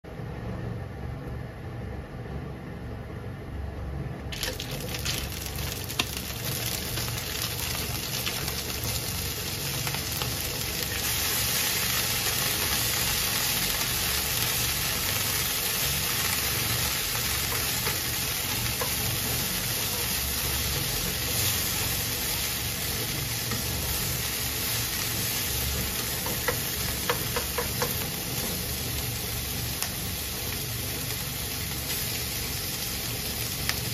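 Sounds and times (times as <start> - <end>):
low steady rumble: 0.1 - 33.9
bacon sizzling in a frying pan: 4.3 - 33.9.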